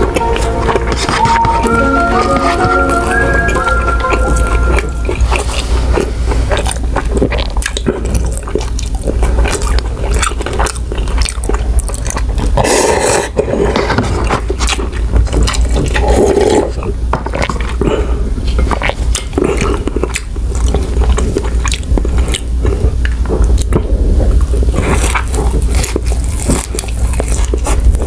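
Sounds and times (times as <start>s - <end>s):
steady low hum: 0.0s - 28.0s
wet chewing and mouth clicks: 0.0s - 28.0s
slurping noodles: 12.0s - 14.8s, 15.5s - 18.0s.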